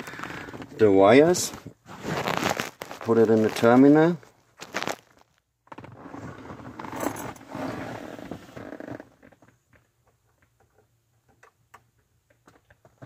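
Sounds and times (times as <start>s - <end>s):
rustling handling noise: 0.0s - 7.5s.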